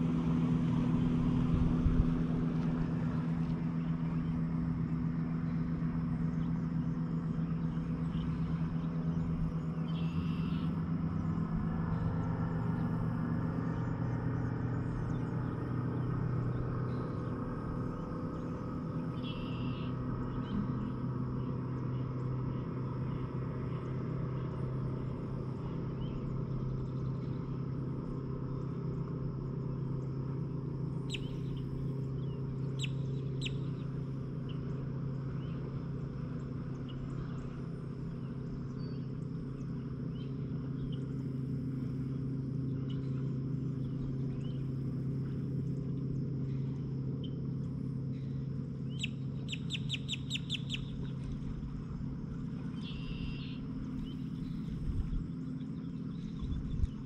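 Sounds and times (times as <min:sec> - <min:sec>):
birds chirping: 0:00.0 - 0:57.0
low mechanical hum: 0:00.0 - 0:57.0
bird trill: 0:05.5 - 0:12.1, 0:14.6 - 0:22.7, 0:31.0 - 0:35.7, 0:48.1 - 0:51.3, 0:52.0 - 0:56.9.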